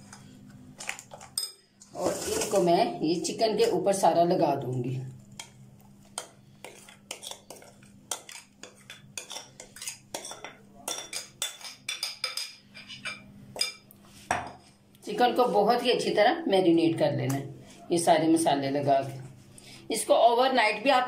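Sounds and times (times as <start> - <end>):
kitchenware clinks and scrapes: 0.9 - 2.7, 6.6 - 14.6.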